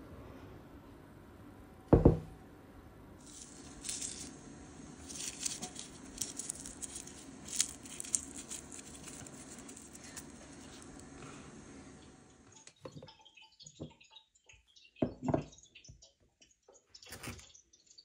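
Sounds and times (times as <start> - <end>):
dried petals crackling and pattering: 3.2 - 12.0.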